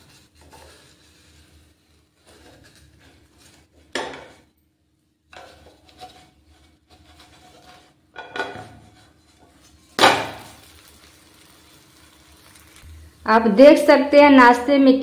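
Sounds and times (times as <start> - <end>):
wooden spatula scraping a pan: 0.0 - 4.5, 5.3 - 12.9
pancake dropping into pan: 10.0 - 11.5.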